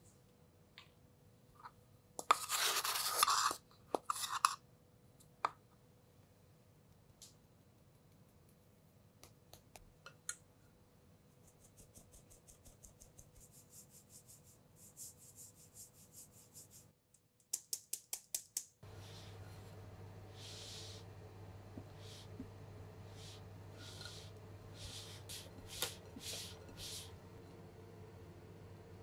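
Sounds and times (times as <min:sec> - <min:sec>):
spatula scraping batter: 0:02.2 - 0:04.6, 0:23.1 - 0:27.2
flour sifted through metal sieve: 0:02.3 - 0:04.5, 0:11.5 - 0:16.9, 0:18.8 - 0:21.1, 0:21.8 - 0:27.4.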